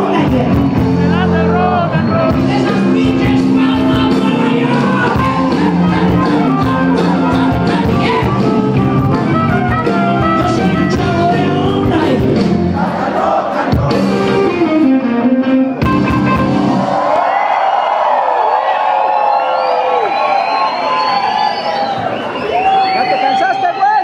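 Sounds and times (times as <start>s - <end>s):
electric guitar: 0.0s - 12.8s, 13.8s - 17.0s
person singing: 0.0s - 14.6s
rock band playing live: 0.0s - 17.0s
drums: 0.0s - 17.4s.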